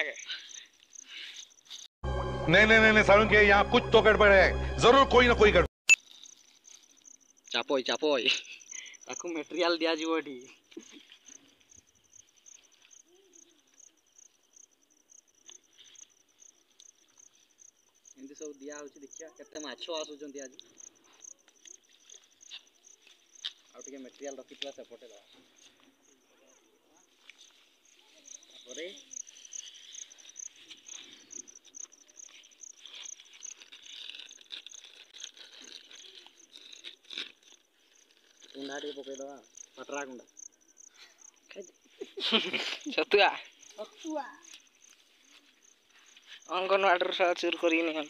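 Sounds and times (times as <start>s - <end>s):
insect chirping: 0.0s - 1.9s, 5.9s - 48.0s
plastic bag crinkling: 32.3s - 38.9s.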